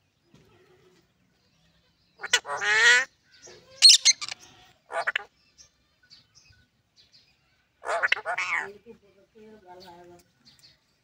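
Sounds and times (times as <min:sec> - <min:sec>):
parrot squawking: 0:02.2 - 0:03.1, 0:03.7 - 0:05.3, 0:07.8 - 0:08.7.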